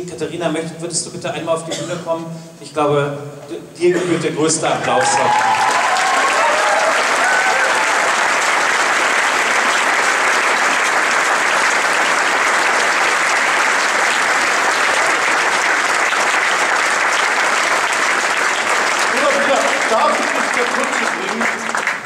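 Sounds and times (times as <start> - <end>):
audience applauding: 4.8 - 22.0.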